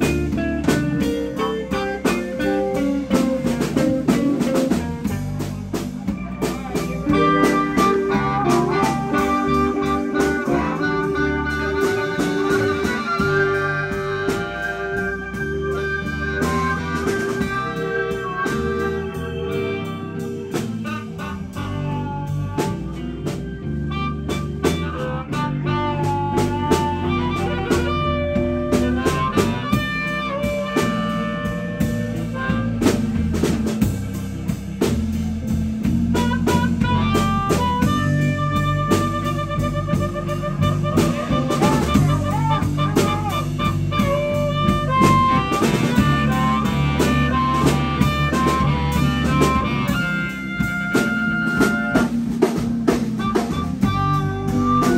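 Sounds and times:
amplified blues harmonica: 0.0 - 54.9
electric blues band playing: 0.0 - 54.9.

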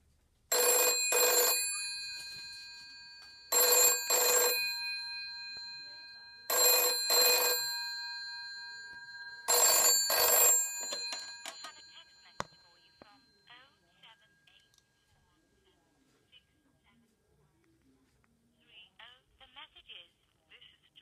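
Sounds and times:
telephone bell ringing: 0.5 - 14.8.

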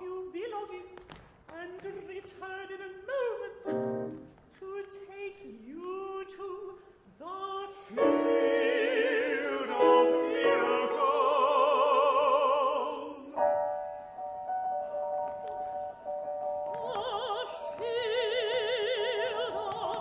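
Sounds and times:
operatic singing: 1.6 - 13.6, 16.7 - 20.0
piano accompaniment: 3.6 - 4.5, 7.9 - 20.0.

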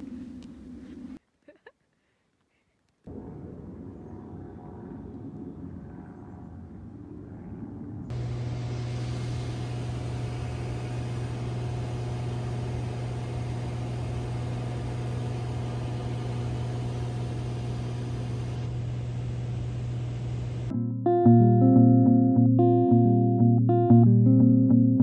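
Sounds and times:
propeller plane engine drone: 3.1 - 20.7.

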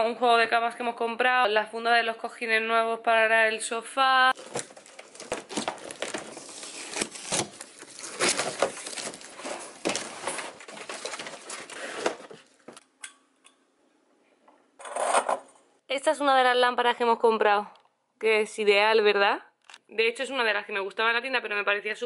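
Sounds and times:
cardboard and plastic rustling: 4.3 - 12.8.

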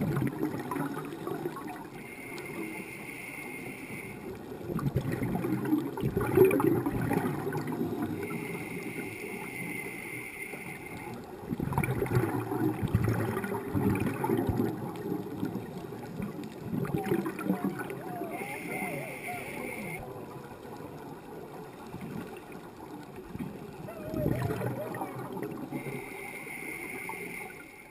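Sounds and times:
exhaled bubbles gurgling: 0.0 - 27.9
regulator inhalation hiss: 2.1 - 4.2, 8.3 - 11.1, 25.8 - 27.9.

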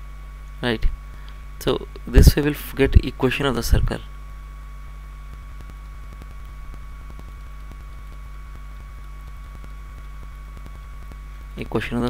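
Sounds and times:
electrical hum: 0.0 - 12.0
faint high whine and hiss: 0.0 - 12.0
faint irregular ticks: 4.2 - 12.0.

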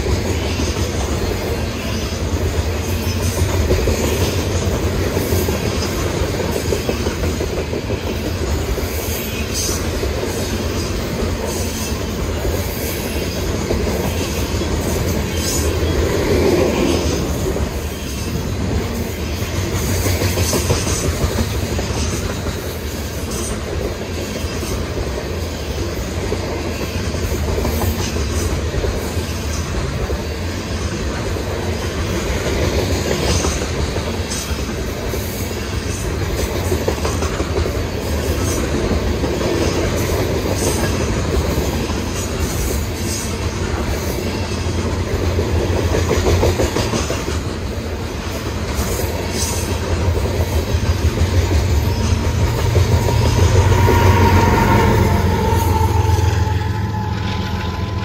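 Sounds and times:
train wheels rumbling on rail: 0.0 - 58.0
wheel squeals: 51.7 - 58.0.

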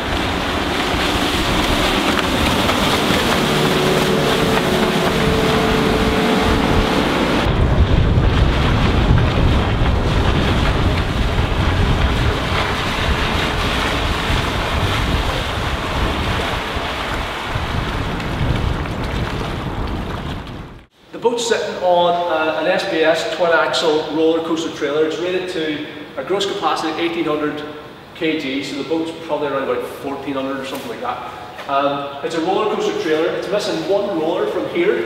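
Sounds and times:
choppy water: 0.0 - 20.9
outboard motor whine: 0.0 - 20.9
wind noise on microphone: 0.0 - 20.9.

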